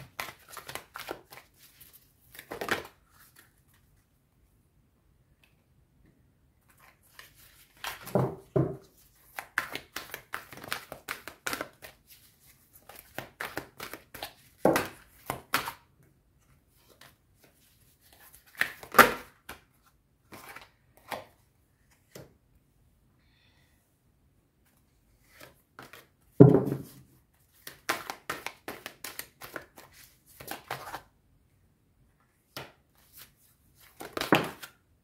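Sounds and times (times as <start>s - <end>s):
cards shuffling: 0.0s - 3.6s, 8.9s - 15.8s, 16.8s - 19.6s, 26.7s - 31.1s, 32.6s - 34.8s.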